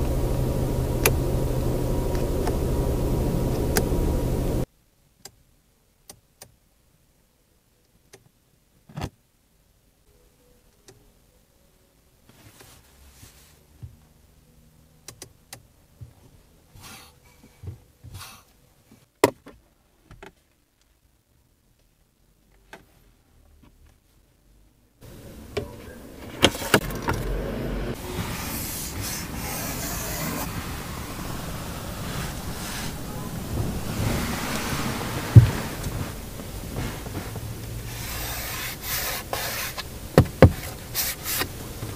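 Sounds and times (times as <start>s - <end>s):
rushing hiss and rumble: 0.0s - 4.7s, 25.0s - 41.9s.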